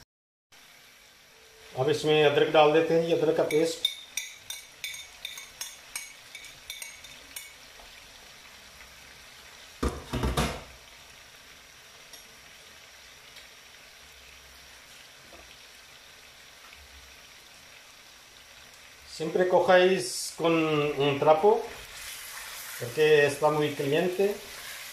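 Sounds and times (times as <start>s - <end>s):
faint sizzle of chicken cooking: 0.5s - 24.9s
metal spoon clinking on plate: 3.5s - 7.6s
loud knocks: 9.8s - 10.7s.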